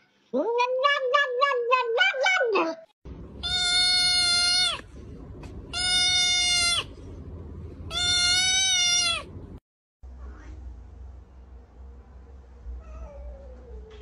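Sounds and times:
steady low hum: 3.1s - 14.0s
kitten meowing: 3.4s - 4.8s, 5.7s - 6.9s, 7.9s - 9.3s.

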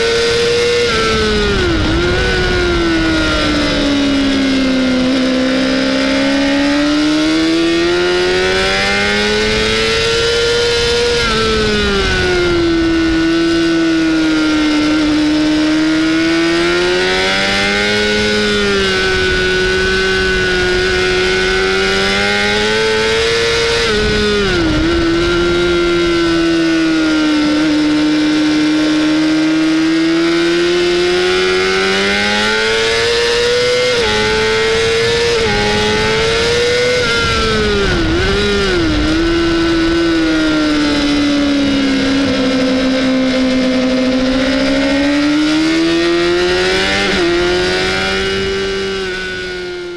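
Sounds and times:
wind rush: 0.0s - 30.1s, 30.8s - 49.9s
motorcycle engine at high revs: 0.0s - 49.9s.

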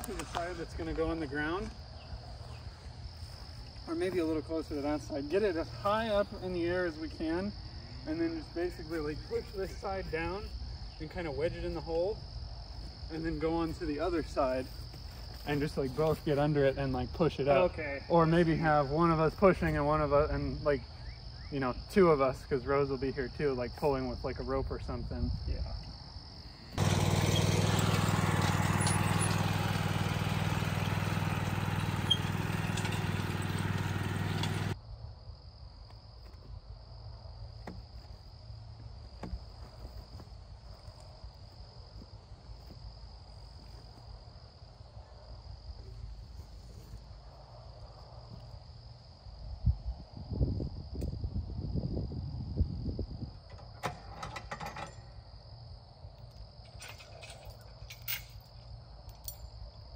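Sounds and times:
insects chirping: 0.0s - 59.9s
lawn mower engine running: 26.8s - 34.8s
low thumps and scuffs: 39.0s - 43.0s.

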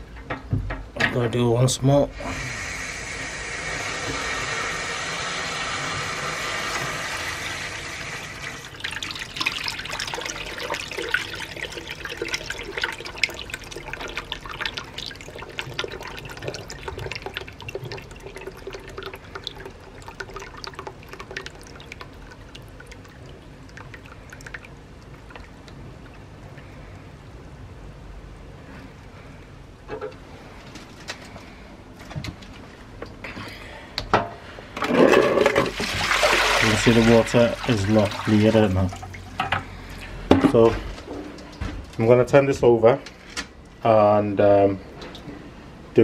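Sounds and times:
water gushing from a hose: 2.2s - 25.5s, 35.3s - 39.4s
water splashing in a bucket: 3.7s - 27.0s, 34.9s - 40.8s.

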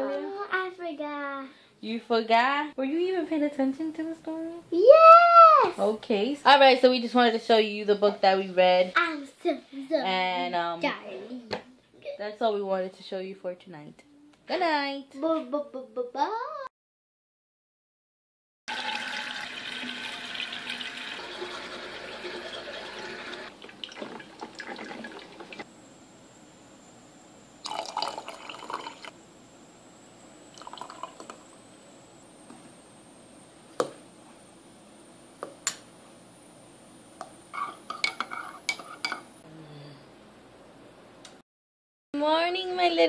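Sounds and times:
liquid pouring into a mug: 18.7s - 25.6s, 27.6s - 29.2s, 30.5s - 31.5s
water running: 18.7s - 25.7s, 27.6s - 29.2s, 30.5s - 31.5s
mug and dishes clinking: 37.6s - 39.3s.

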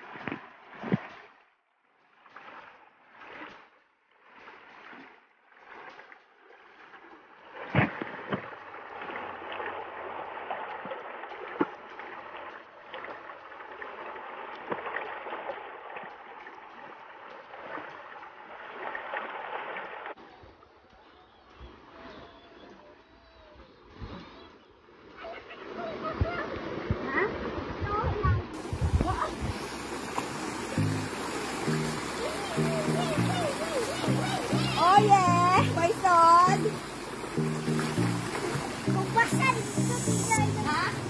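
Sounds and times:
small water splashes and clicks: 0.0s - 41.0s
stream rushing over rocks: 28.6s - 41.0s.

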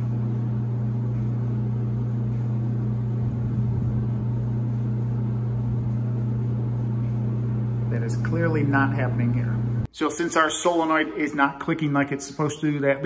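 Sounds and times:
dryer drum motor humming: 0.0s - 9.9s.

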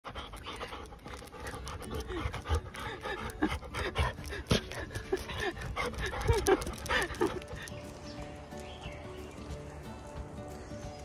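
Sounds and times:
dog panting: 0.0s - 7.8s.

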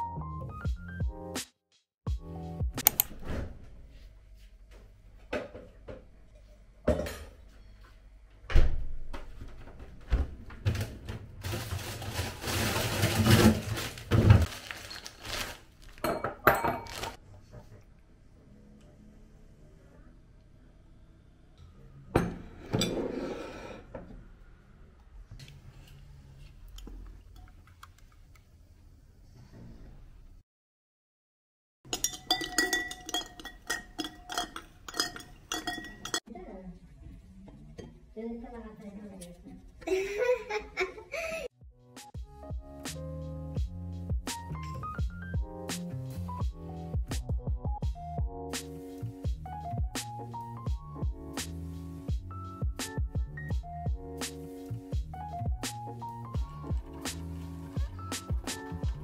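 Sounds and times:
ice clinking in a glass: 31.9s - 36.2s
plate and fork clattering: 31.9s - 36.2s
electronic beat music: 41.9s - 59.0s.

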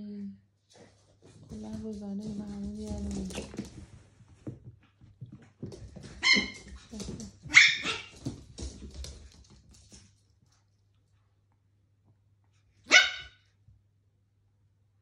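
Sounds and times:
dogs scuffling: 0.7s - 10.8s
small dog yaps: 7.5s - 8.2s, 12.9s - 13.4s
dog barking sharply: 12.9s - 13.4s.

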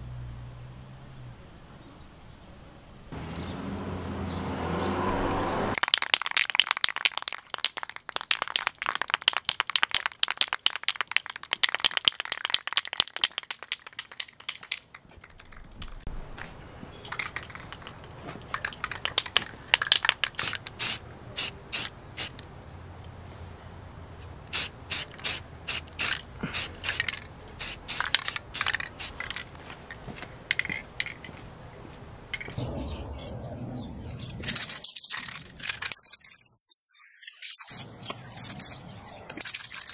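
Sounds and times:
aerosol can ball rattling: 5.8s - 16.1s, 17.0s - 21.0s, 24.5s - 29.6s, 30.5s - 31.3s
spray paint hissing: 18.6s - 22.4s, 24.5s - 29.6s, 35.9s - 38.8s.

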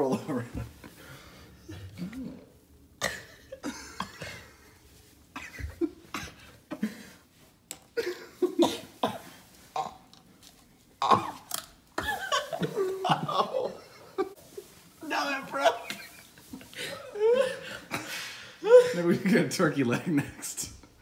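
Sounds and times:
person coughing and grunting: 1.7s - 4.5s, 8.0s - 10.1s, 11.0s - 11.6s.

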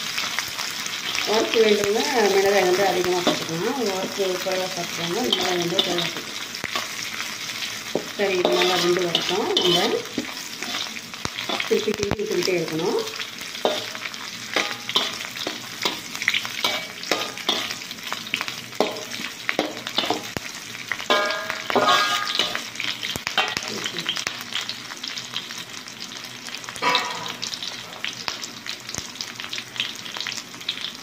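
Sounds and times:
food sizzling in hot oil: 0.0s - 31.0s
metal spatula scraping wok: 2.2s - 11.9s, 13.5s - 17.9s, 21.1s - 22.6s, 26.8s - 27.5s.

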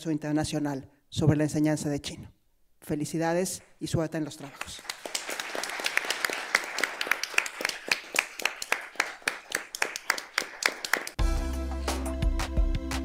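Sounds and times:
crowd clapping: 4.4s - 11.2s
music with deep bass: 11.2s - 13.0s.

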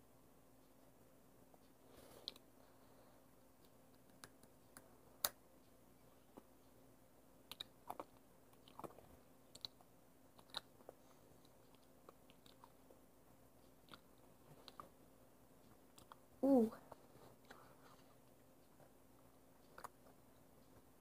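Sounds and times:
chip being chewed: 7.5s - 12.8s.

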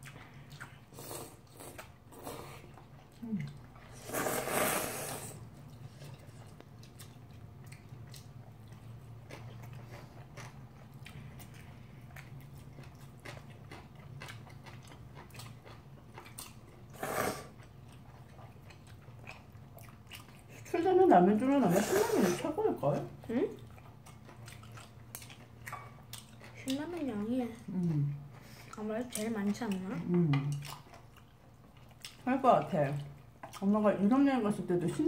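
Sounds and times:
quiet chewing with smacks: 0.0s - 3.9s, 5.4s - 20.9s, 22.9s - 33.8s
noodles being slurped: 3.9s - 5.4s.

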